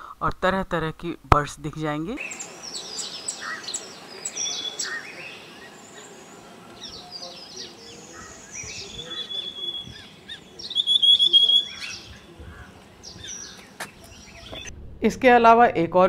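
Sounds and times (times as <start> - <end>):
birds chirping and calling: 2.2 - 14.7
bird trilling on a high note: 8.1 - 13.5.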